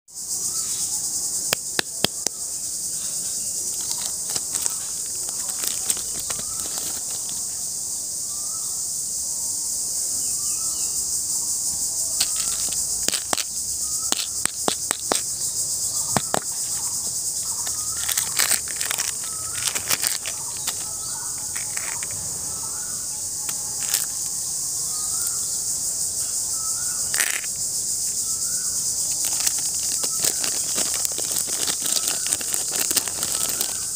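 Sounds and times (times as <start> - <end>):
insect chorus: 0.0 - 33.9
plastic toy ball clicking: 12.2 - 15.3, 16.1 - 16.5, 17.6 - 20.8, 21.5 - 22.1, 23.5 - 24.1, 27.1 - 27.5.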